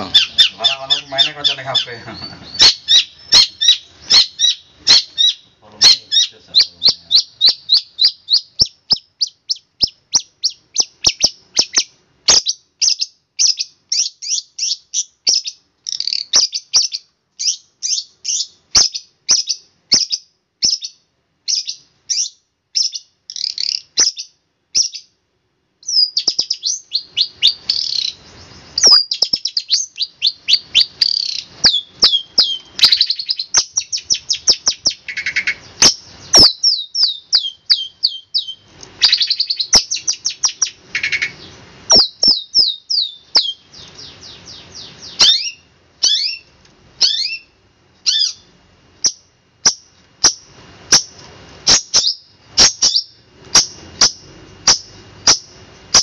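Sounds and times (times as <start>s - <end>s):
bird singing sharp high notes: 0.0s - 20.1s, 25.9s - 48.4s.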